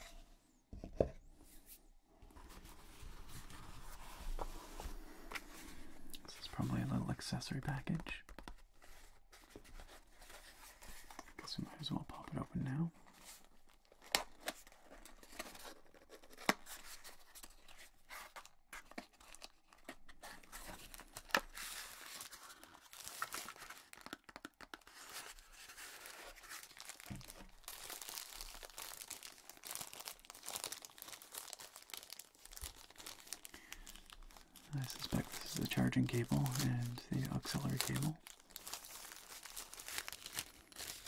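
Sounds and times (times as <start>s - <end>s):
packaging crinkling and tearing: 11.8s - 41.0s.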